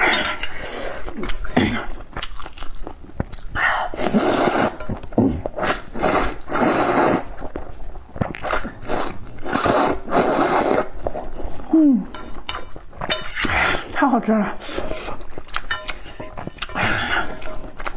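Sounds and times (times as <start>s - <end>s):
wet chewing: 0.0s - 14.0s, 14.6s - 17.9s
person slurping noodles: 3.7s - 12.0s.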